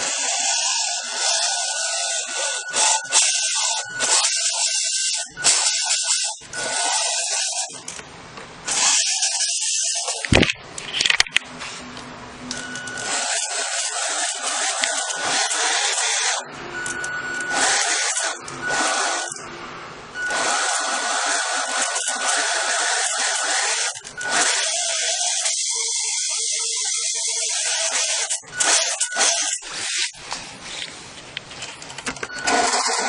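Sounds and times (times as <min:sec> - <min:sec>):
small electric motor whining: 0:00.0 - 0:08.0, 0:12.5 - 0:19.4, 0:20.2 - 0:30.2, 0:32.2 - 0:33.0.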